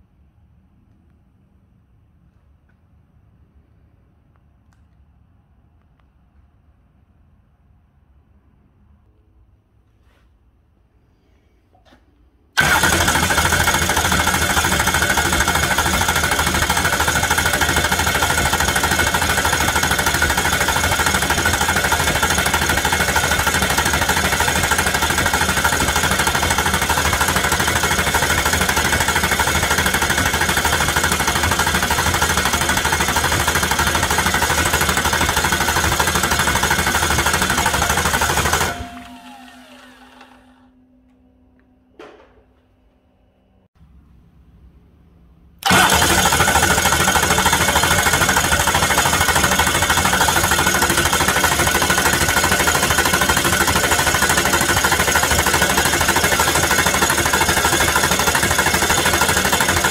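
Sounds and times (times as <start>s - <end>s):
diesel engine cranking on starter: 12.6s - 40.7s, 45.6s - 59.9s.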